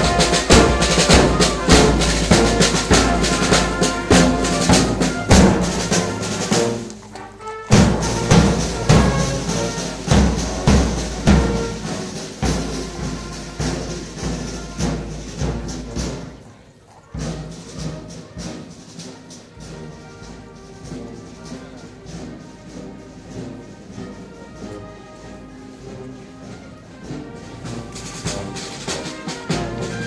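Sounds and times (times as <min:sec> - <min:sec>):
steady drum beat: 0:00.0 - 0:07.0, 0:07.6 - 0:16.5, 0:27.0 - 0:30.0
brass band playing: 0:00.0 - 0:30.0.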